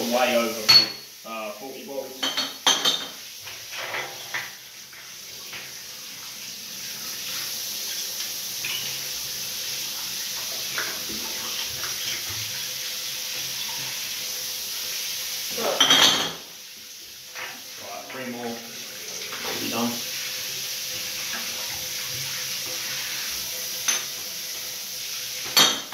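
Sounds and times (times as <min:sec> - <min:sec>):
shower water spraying: 0:00.0 - 0:25.9
glass bottles clinking: 0:00.7 - 0:01.1, 0:02.2 - 0:03.2, 0:15.8 - 0:16.4, 0:25.5 - 0:25.9
glass clattering: 0:00.7 - 0:01.1, 0:02.2 - 0:03.2, 0:15.8 - 0:16.4, 0:25.5 - 0:25.9.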